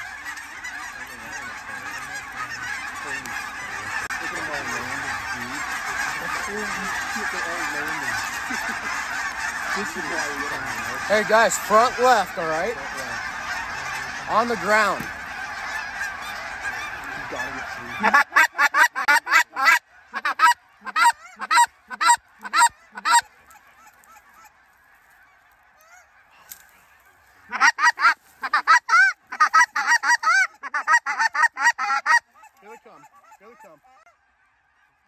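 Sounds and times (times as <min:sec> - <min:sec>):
loud quick goose honks: 0:00.0 - 0:24.5
flock of geese calling: 0:00.0 - 0:35.0.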